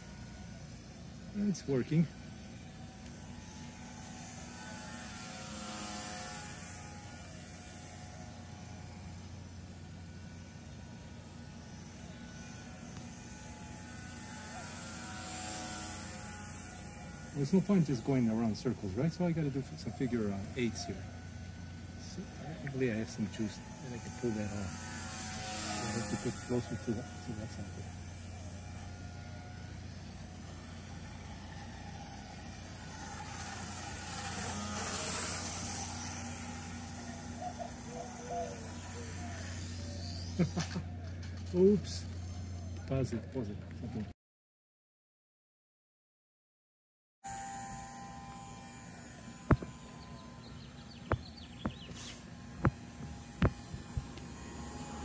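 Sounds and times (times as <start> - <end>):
model airplane propeller buzzing: 0.0 - 44.1, 47.3 - 55.0
steady low hum: 0.0 - 44.1, 47.3 - 55.0
sharp thumps: 49.4 - 50.1, 50.8 - 54.6
high bird chirps: 49.6 - 52.2.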